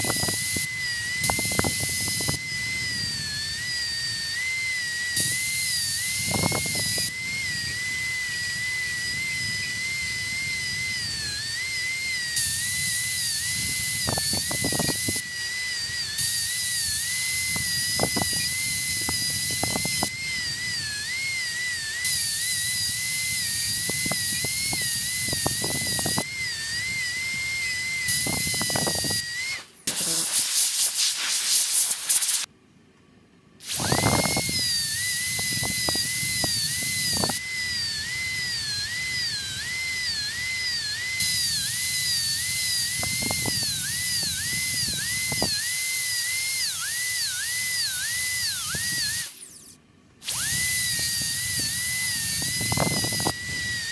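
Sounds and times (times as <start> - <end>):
air hissing: 0.0 - 32.5, 33.6 - 53.9
dental drill whining: 0.0 - 32.5, 33.6 - 53.9.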